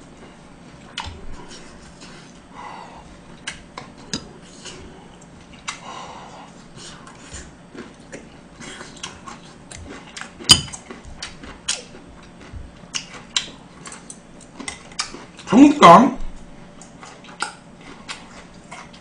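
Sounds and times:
chewing and mouth clicks: 0:03.3 - 0:05.8, 0:06.6 - 0:15.5, 0:16.7 - 0:19.0.

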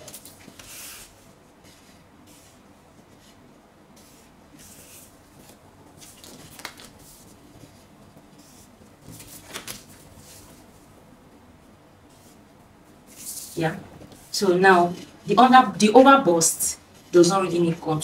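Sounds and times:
marker drawing on paper: 0:00.6 - 0:03.4, 0:04.0 - 0:05.2.

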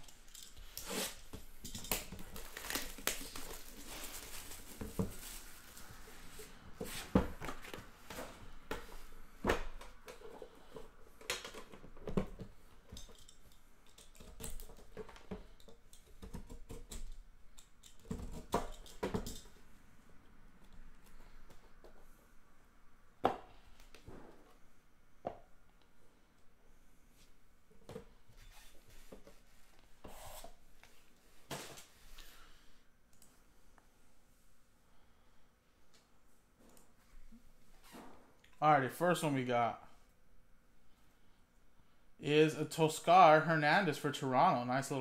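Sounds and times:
plastic wrap rustling: 0:00.0 - 0:06.6.

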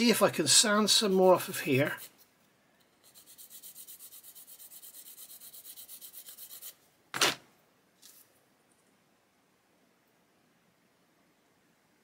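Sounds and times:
small part rubbed on sanding stick: 0:00.9 - 0:02.3, 0:02.9 - 0:06.8.

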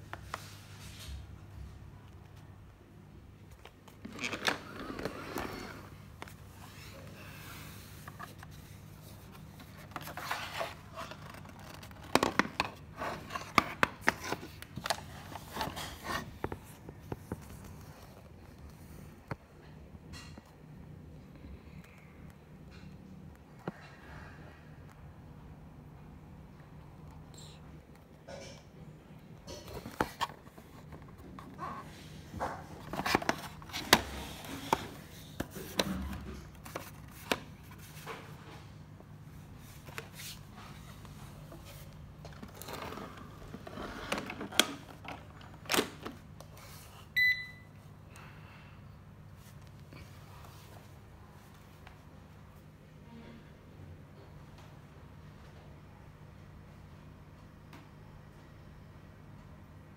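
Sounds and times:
plastic scraping: 0:03.6 - 0:17.7, 0:29.5 - 0:38.2, 0:42.2 - 0:46.2.

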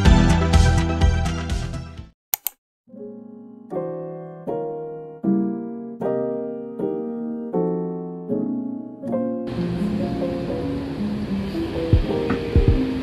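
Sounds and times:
soft electric piano chords: 0:02.9 - 0:13.0.

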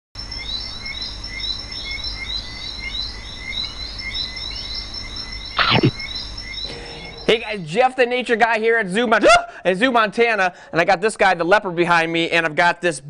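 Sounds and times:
high animal chirps: 0:05.3 - 0:07.8.

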